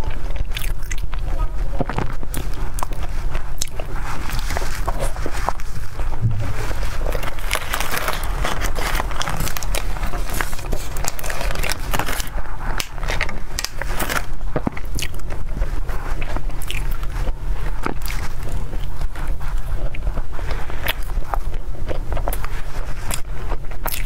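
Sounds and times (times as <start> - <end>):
plastic tray crackling: 4.4 - 12.2
wet chewing and lip smacks: 23.1 - 24.0.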